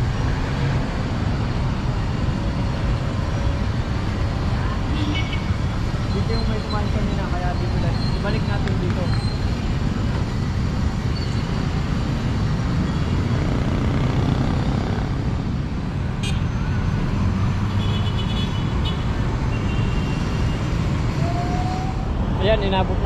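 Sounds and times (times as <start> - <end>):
road traffic rumble: 0.0 - 23.0.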